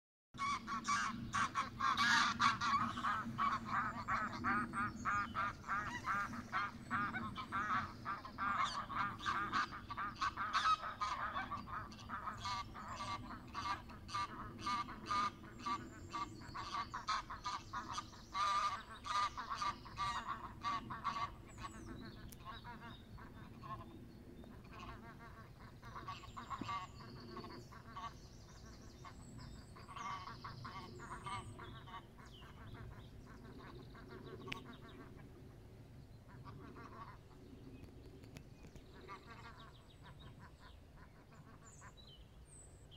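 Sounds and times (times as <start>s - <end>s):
geese honking: 0.4s - 21.8s, 24.6s - 28.2s, 29.8s - 35.3s.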